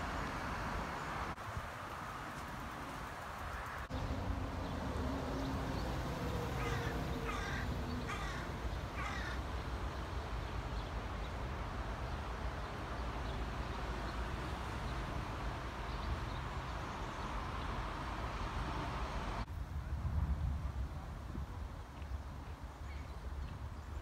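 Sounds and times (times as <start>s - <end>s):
crow cawing: 6.6s - 9.4s.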